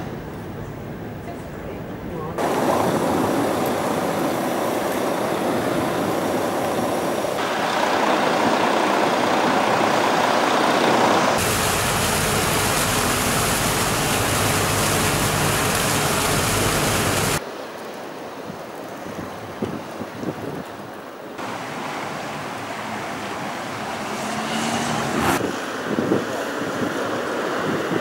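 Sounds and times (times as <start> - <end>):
outdoor background noise: 0.0 - 28.0
fountain jets splashing into pool: 2.4 - 17.4, 21.4 - 24.6.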